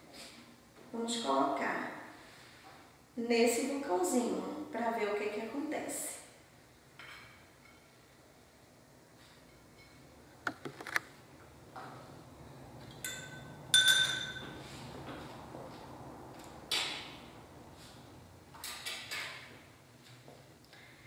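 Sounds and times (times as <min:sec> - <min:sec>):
ringing glass clinks: 0:13.0 - 0:14.6
glasses knocking on tabletop: 0:13.1 - 0:14.4.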